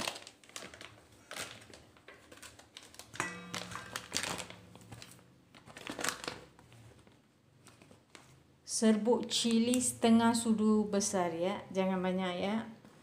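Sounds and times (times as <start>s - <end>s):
plastic packets crinkling: 0.0s - 8.4s.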